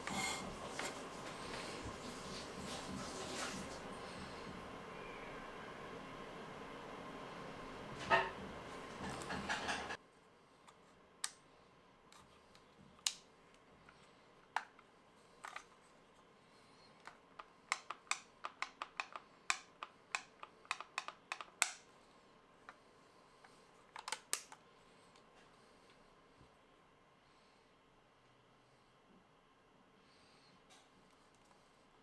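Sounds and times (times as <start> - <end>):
toy blaster parts clicking: 17.7 - 21.8.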